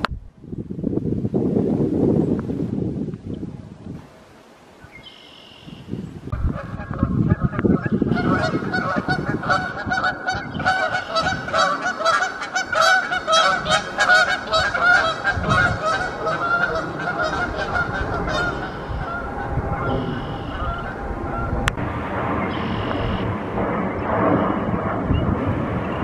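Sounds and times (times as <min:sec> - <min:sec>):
geese honking: 0:06.3 - 0:21.8, 0:22.5 - 0:23.3.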